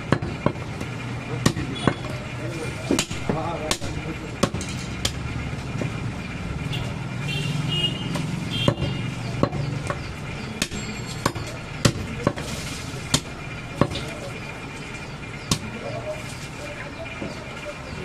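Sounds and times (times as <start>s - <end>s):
cleaver chopping meat and bone: 0.0s - 2.2s, 2.8s - 5.2s, 8.1s - 14.2s, 15.5s - 15.8s.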